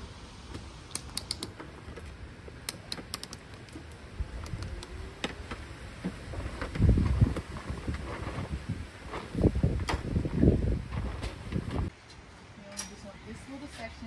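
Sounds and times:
metal clip clicking: 0.9s - 1.6s, 2.6s - 3.8s
low rustling and bumps: 5.4s - 11.9s.

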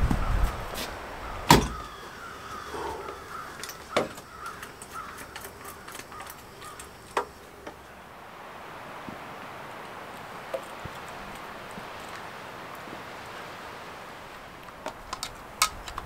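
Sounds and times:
crow cawing: 1.2s - 7.4s
sharp knocks: 1.5s - 1.9s.

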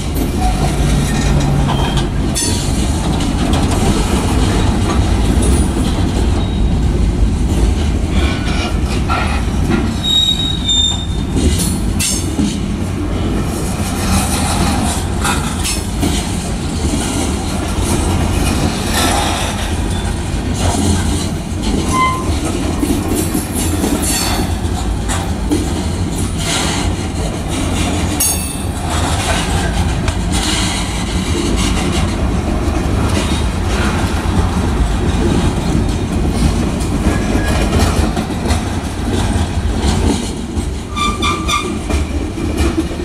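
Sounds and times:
freight train rolling past: 0.0s - 43.0s
steel wheels clattering over rail joints: 0.0s - 43.0s
high wheel squeals: 10.0s - 11.3s, 21.9s - 22.4s.

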